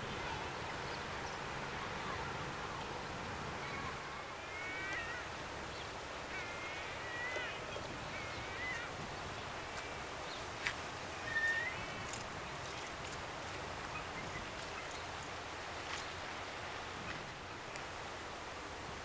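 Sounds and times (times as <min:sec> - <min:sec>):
steady background hiss: 0:00.0 - 0:19.0
birds calling with wavering cries: 0:03.6 - 0:13.0.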